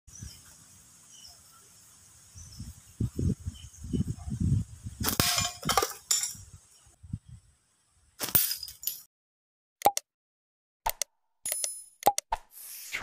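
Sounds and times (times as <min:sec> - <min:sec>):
shot clanging on metal plate: 0:05.1 - 0:06.3.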